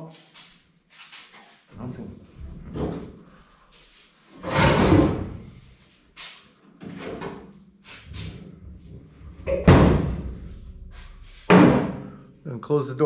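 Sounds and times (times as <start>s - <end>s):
door banging shut: 9.2s - 12.1s.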